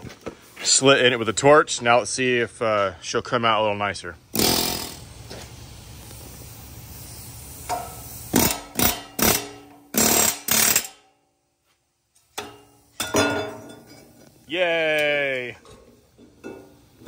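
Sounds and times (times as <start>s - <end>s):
pneumatic air hammer hammering: 4.3s - 5.4s, 7.5s - 11.2s, 12.4s - 13.8s.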